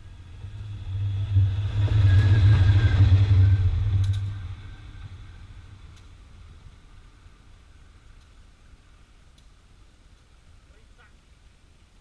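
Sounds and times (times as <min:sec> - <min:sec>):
locomotive rumbling: 0:00.0 - 0:08.1.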